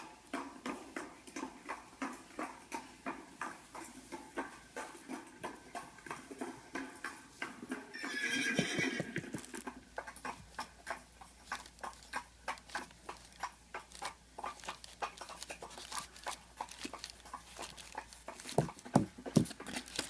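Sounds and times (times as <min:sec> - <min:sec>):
clip-clop of hoofbeats: 0:00.0 - 0:20.0
horse whinny: 0:07.9 - 0:09.6.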